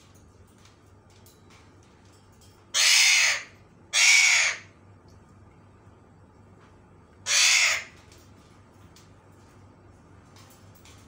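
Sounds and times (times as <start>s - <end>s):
parakeet screeching calls: 2.7s - 4.7s, 7.2s - 8.0s.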